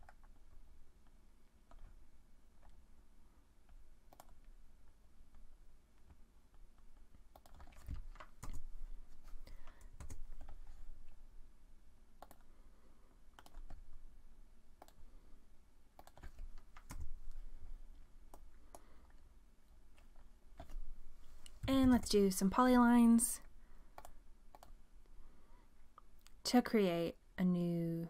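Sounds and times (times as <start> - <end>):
mouse and keyboard clicks: 4.1 - 4.5, 7.3 - 8.7, 12.2 - 12.5, 13.4 - 13.8, 14.8 - 15.0, 16.0 - 17.2, 24.0 - 24.8.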